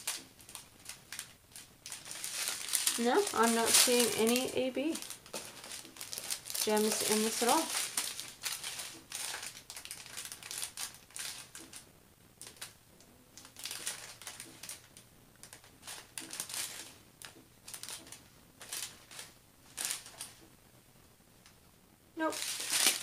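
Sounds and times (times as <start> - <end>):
plastic bags crinkling: 0.0 - 11.8, 12.4 - 12.8, 13.4 - 20.4, 22.2 - 23.0.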